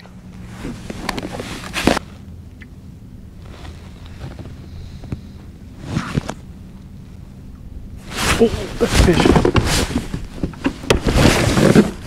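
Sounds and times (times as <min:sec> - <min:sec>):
steady low hum: 0:00.0 - 0:12.0
wind: 0:00.0 - 0:12.0
handling knocks and rustling: 0:08.0 - 0:12.0.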